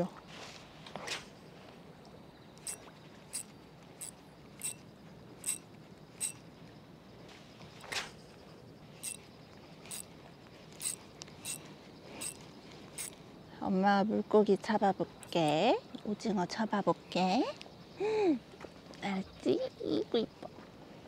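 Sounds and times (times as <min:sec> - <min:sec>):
fishing rod swish: 0:07.8 - 0:08.2.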